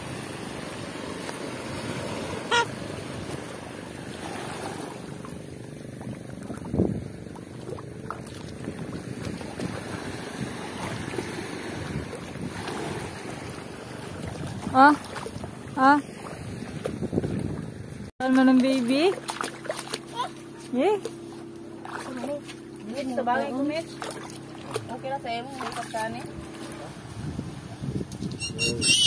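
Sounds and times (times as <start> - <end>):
surf: 0.0 - 28.9
wind: 0.0 - 29.0
footsteps splashing in shallow water: 3.3 - 27.7
short high squeak: 28.2 - 29.0.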